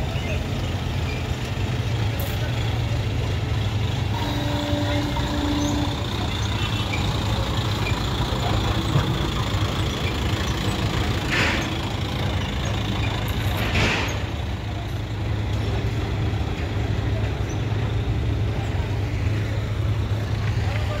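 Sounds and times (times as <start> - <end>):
truck engines idling: 0.0 - 21.0
air brake hisses: 11.2 - 11.8.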